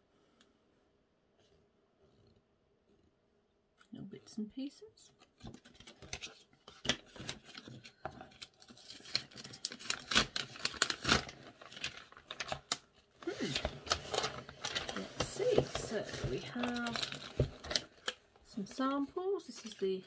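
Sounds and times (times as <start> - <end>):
paper rustling and crinkling: 5.1 - 20.0.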